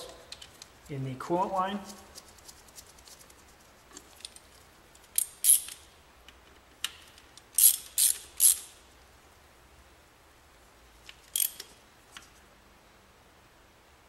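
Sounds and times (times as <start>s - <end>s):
hand ratchet clicking: 5.1s - 5.8s, 6.8s - 8.8s, 11.1s - 11.7s.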